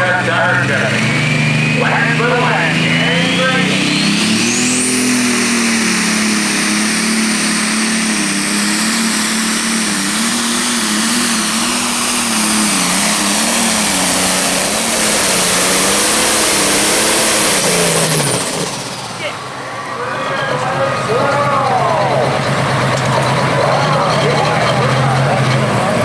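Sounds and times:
steady high whine: 0.0 - 25.3
tractor diesel engine at full throttle: 0.0 - 26.0.

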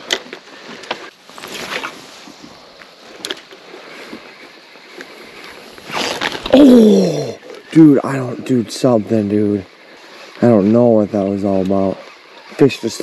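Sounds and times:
fishing rod swish: 1.4 - 2.4.

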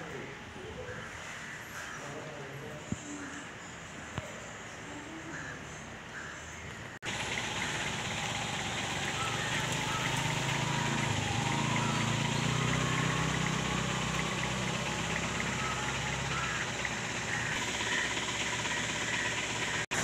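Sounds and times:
birds calling: 0.0 - 20.0
low engine hum: 7.0 - 20.0.

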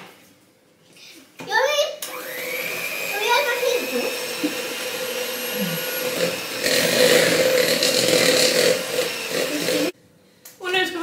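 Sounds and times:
electric hand mixer whining: 2.0 - 10.0
beaters churning dough: 2.2 - 10.0.

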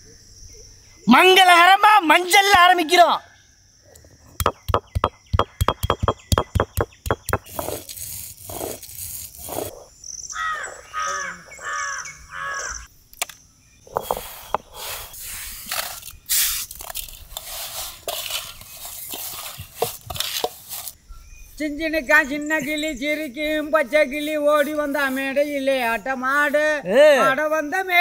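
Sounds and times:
bird calling: 4.1 - 7.7, 9.5 - 12.9
bamboo tube pounding on stone: 4.4 - 7.5
rustling and scraping: 7.3 - 9.9, 13.9 - 21.0.

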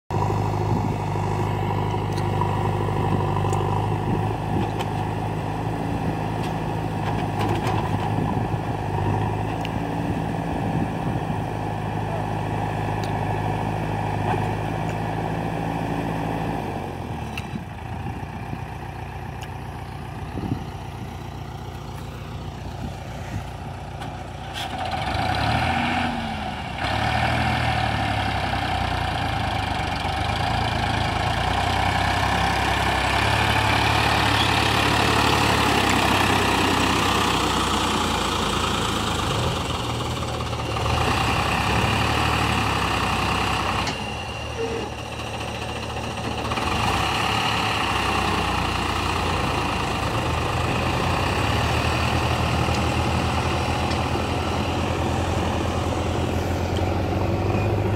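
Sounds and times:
diesel engines running: 0.1 - 57.9
engines revving: 24.5 - 29.0, 30.1 - 57.9.

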